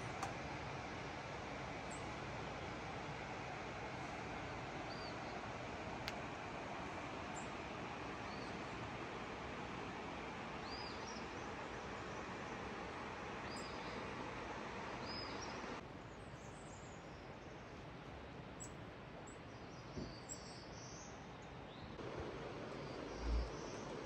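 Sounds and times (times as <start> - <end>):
steady rushing hiss: 0.0 - 15.8, 22.0 - 24.0
birds chirping: 10.6 - 15.8, 21.8 - 24.0.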